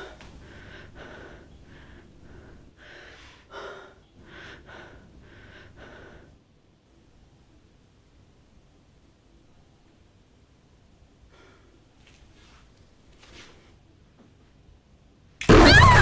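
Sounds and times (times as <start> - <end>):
woman breathing heavily: 0.0 - 6.5, 11.2 - 12.0.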